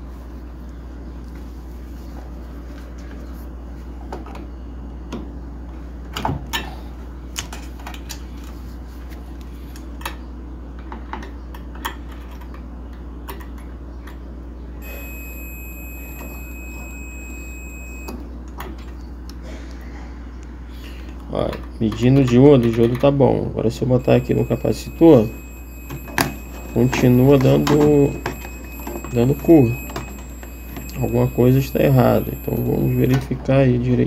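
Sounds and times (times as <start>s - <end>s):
low hum: 14.8s - 18.2s, 24.0s - 33.1s
multimeter beep: 14.8s - 18.2s, 24.0s - 33.3s.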